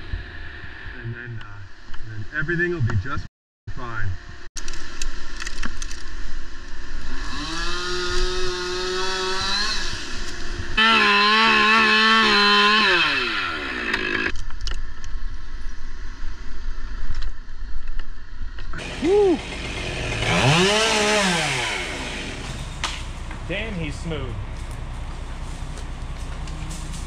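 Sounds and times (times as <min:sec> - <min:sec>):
chainsaw revving: 0:07.1 - 0:14.3, 0:18.8 - 0:23.4.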